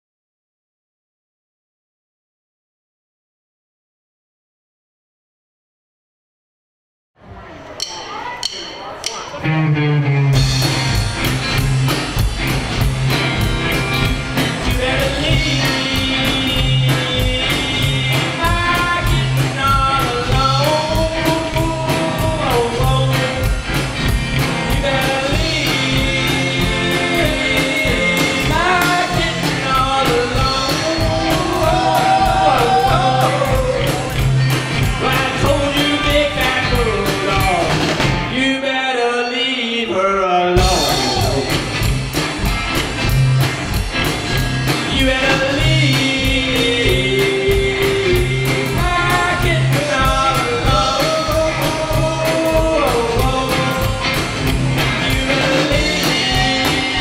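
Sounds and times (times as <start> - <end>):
drum kit: 7.7 - 38.5, 40.6 - 57.0
upright bass: 8.4 - 38.6, 40.6 - 57.0
electric guitars: 9.3 - 38.4, 40.6 - 57.0
male lead vocal: 14.6 - 23.6, 24.7 - 34.2, 34.9 - 41.7, 44.8 - 54.2, 54.9 - 57.0.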